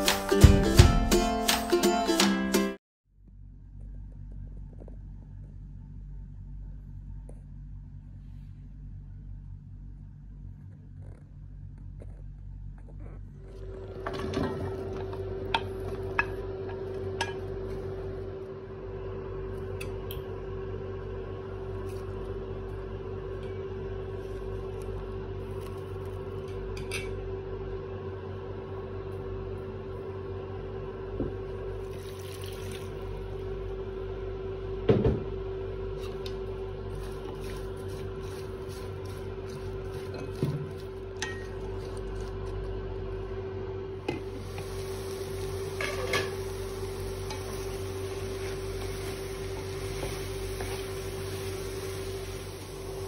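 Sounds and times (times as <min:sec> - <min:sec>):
cooktop electric hum: 0:03.1 - 0:53.0.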